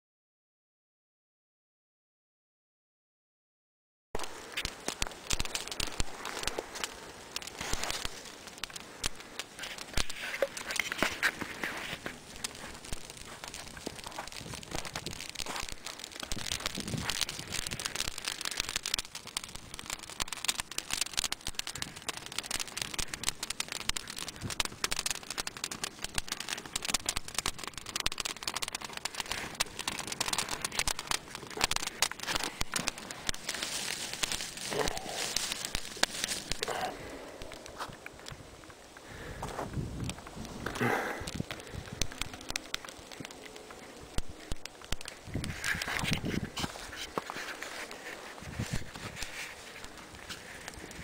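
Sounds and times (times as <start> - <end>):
brushwood fire crackling: 4.2 - 51.0.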